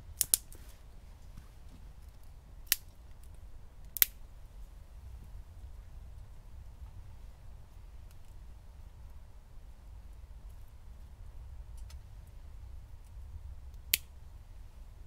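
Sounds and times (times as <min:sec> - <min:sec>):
low fire rumble: 0:00.0 - 0:15.0
wood fire popping: 0:00.1 - 0:04.2.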